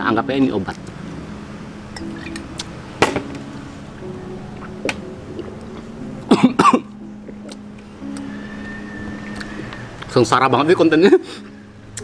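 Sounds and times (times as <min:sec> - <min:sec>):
man coughing: 0:06.3 - 0:06.9.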